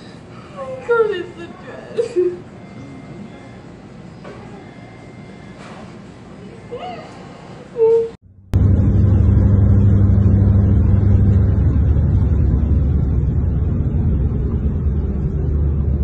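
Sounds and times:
car interior road and engine drone: 8.2s - 16.0s.

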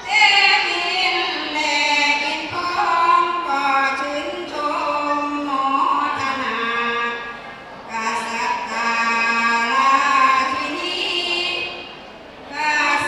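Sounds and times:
women singing devotional chant: 0.0s - 11.9s, 12.5s - 13.0s.

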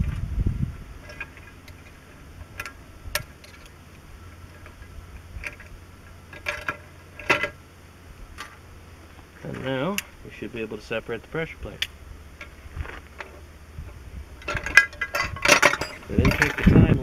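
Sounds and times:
metal parts clinking on workbench: 14.4s - 16.7s.

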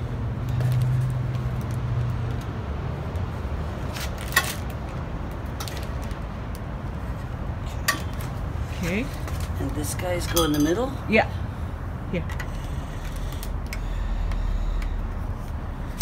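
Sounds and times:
metal tubes clinking: 7.7s - 8.4s, 9.9s - 11.0s.

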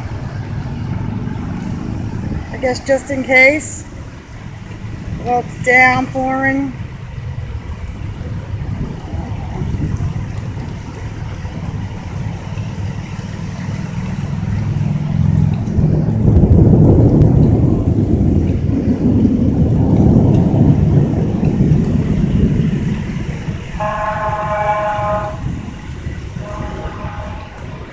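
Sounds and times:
low rumble: 0.0s - 27.9s
rain: 0.0s - 27.9s
wind noise on microphone: 0.0s - 27.9s
vehicle horn steady note: 23.8s - 25.6s, 26.4s - 27.7s.

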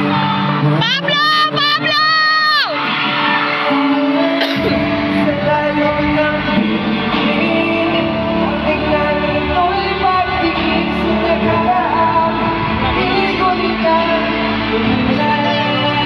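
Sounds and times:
sung vocals: 0.0s - 2.3s, 3.2s - 16.0s
live pop ballad: 0.0s - 16.0s
bass guitar: 4.6s - 16.0s.

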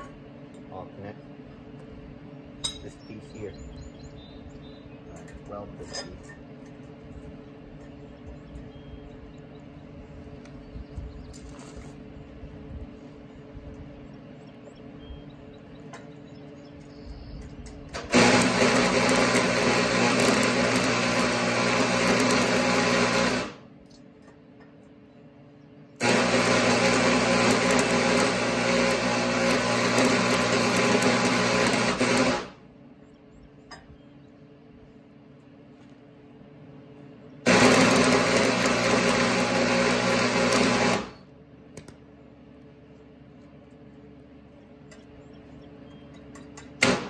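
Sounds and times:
arc welder running: 15.9s - 24.7s, 25.9s - 33.2s, 37.4s - 47.0s.

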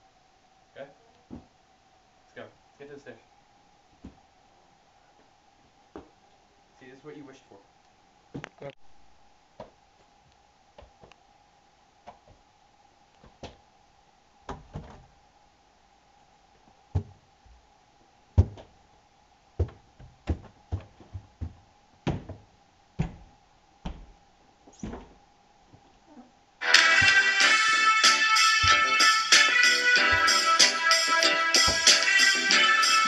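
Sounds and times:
faint steady hum: 0.0s - 33.0s
thumps on a staircase: 16.9s - 17.2s, 18.4s - 18.7s, 19.6s - 25.2s, 31.6s - 32.2s.

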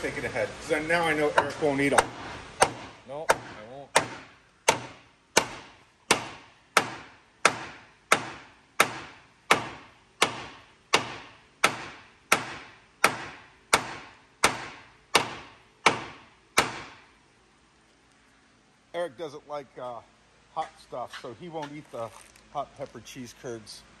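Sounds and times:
hammer striking steel: 1.4s - 17.0s.

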